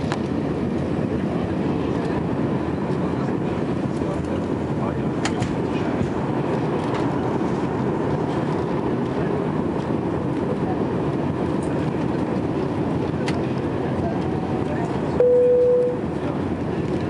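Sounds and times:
aircraft cabin engine rumble: 0.0s - 17.0s.

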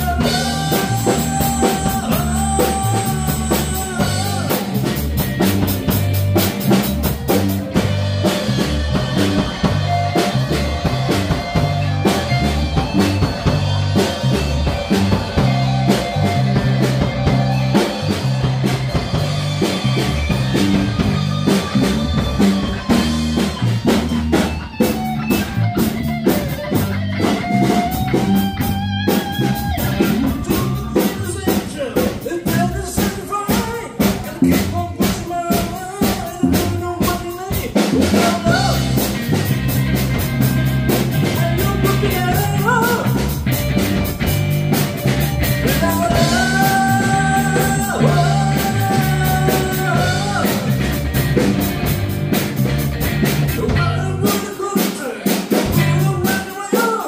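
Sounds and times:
man singing into microphone: 0.0s - 5.0s, 30.0s - 39.0s, 41.2s - 43.3s, 45.6s - 50.8s, 53.6s - 57.0s
drum kit: 0.0s - 57.0s
electric guitars: 0.0s - 57.0s.

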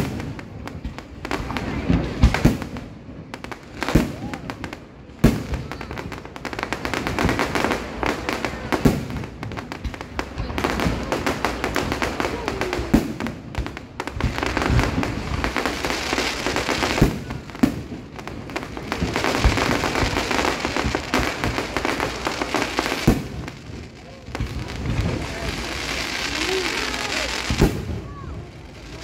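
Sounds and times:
fireworks crackling: 0.0s - 29.0s
sharp firework bangs: 0.0s - 29.0s.

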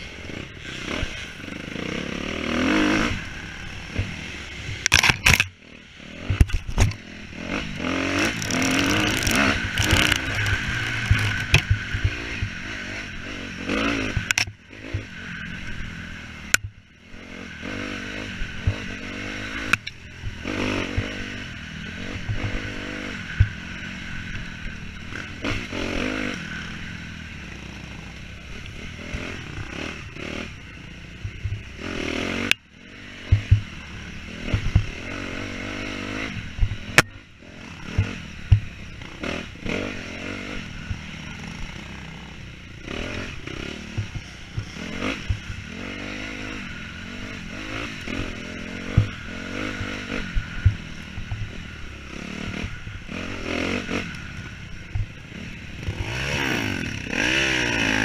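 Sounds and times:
dirt bike engine revving: 0.0s - 58.0s
thumps and clatter from bike: 3.9s - 5.6s, 6.2s - 7.0s, 8.3s - 12.6s, 14.1s - 15.2s, 31.2s - 31.7s, 33.3s - 33.8s, 34.5s - 34.9s, 37.9s - 38.8s, 43.9s - 45.6s, 48.9s - 49.2s.

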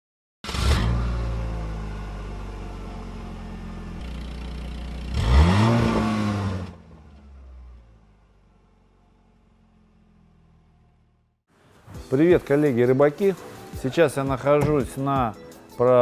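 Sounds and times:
engine rev sound effect: 4.0s - 8.2s.

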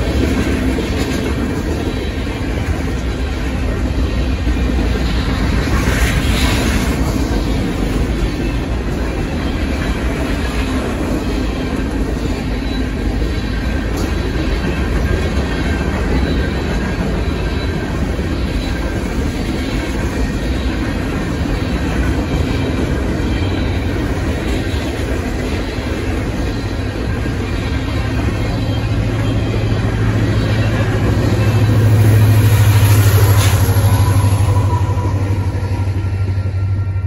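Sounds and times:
wheels clacking over rail joints: 0.0s - 36.6s
freight cars rumbling past: 25.6s - 37.0s.

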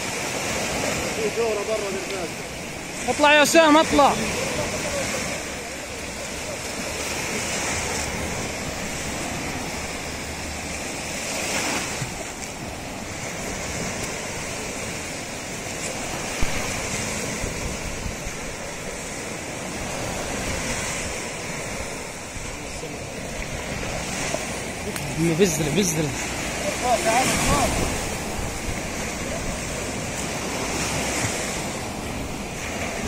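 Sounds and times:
sea waves breaking on beach: 0.0s - 33.0s.

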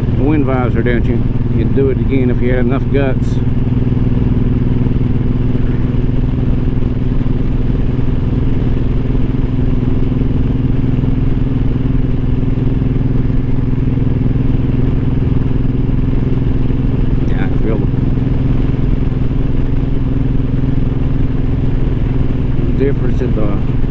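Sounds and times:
motorcycle engine cruising: 0.0s - 23.9s.

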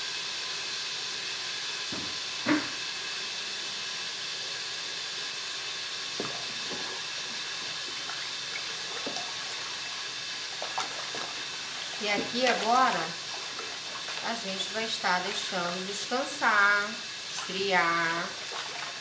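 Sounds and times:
soap foam fizzing: 3.9s - 19.0s.

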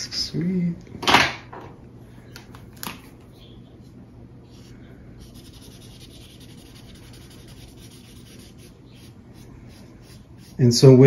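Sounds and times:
marker scratching on paper: 5.2s - 10.6s.

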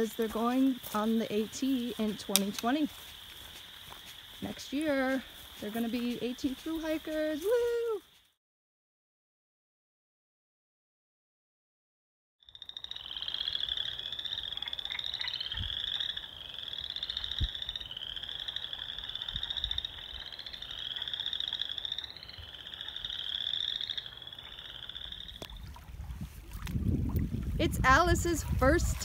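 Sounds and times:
frogs calling in trills: 0.0s - 8.3s, 12.4s - 25.9s
soft low thumps: 25.5s - 29.0s.

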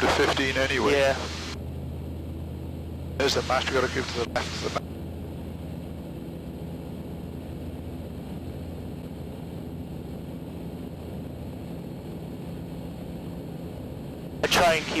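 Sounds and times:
aircraft engine and propeller droning: 0.0s - 15.0s
intercom hiss: 3.2s - 4.8s, 14.4s - 15.0s.

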